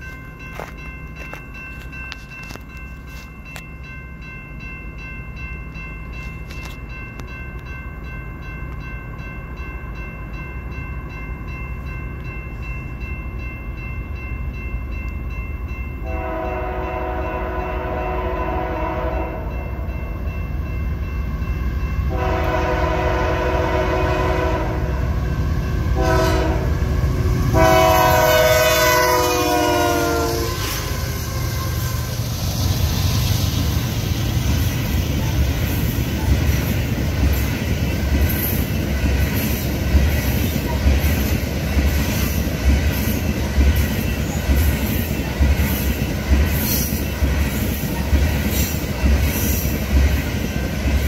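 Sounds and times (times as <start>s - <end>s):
crossing bell ringing: 0.0s - 51.0s
train rumble: 0.0s - 51.0s
locomotive air horn: 16.0s - 19.6s, 22.1s - 25.2s, 26.0s - 32.2s.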